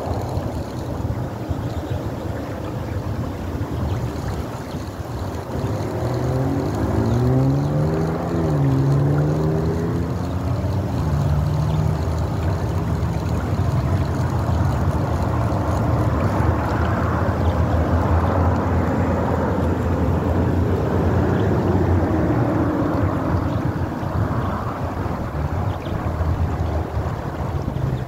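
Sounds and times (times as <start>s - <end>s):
fast-flowing water rushing: 0.0s - 28.0s
wind buffeting microphone: 0.0s - 28.0s.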